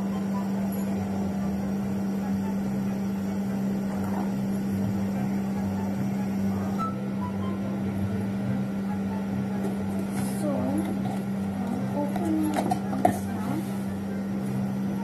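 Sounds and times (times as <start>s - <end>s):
steady low hum: 0.0s - 15.0s
wavering low rumble: 0.0s - 15.0s.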